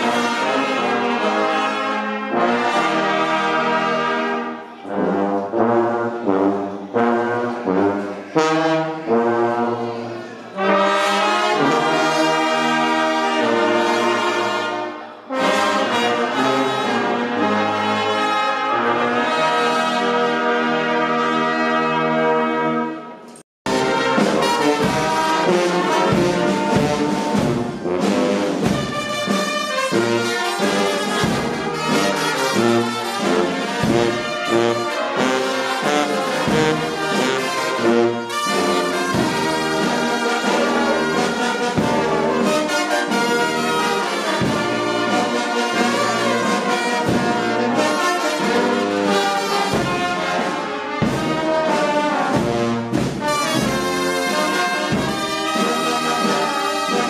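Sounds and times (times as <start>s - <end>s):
brass band playing: 0.0s - 57.0s.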